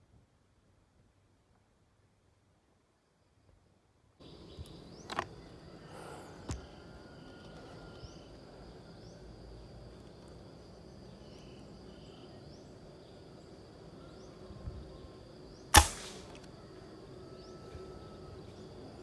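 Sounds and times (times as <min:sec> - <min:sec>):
insects droning: 0:02.9 - 0:19.0
air rifle shot: 0:15.7 - 0:16.5.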